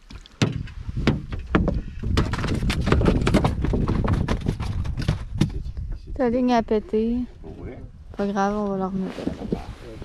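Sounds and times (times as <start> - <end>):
gear knocking against aluminum boat: 0.4 - 5.6.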